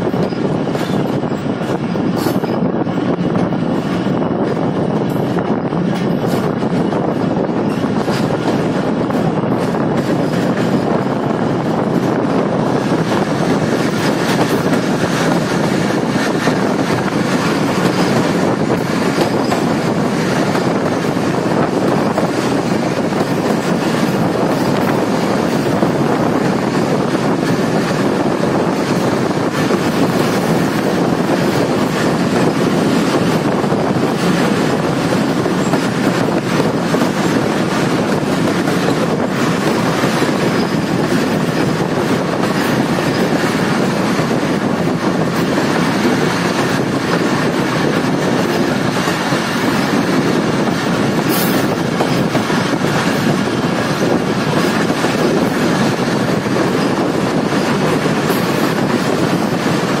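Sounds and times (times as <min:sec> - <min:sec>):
clickety-clack of track: 0:00.0 - 1:00.0
train wheels rumbling on rails: 0:00.0 - 1:00.0.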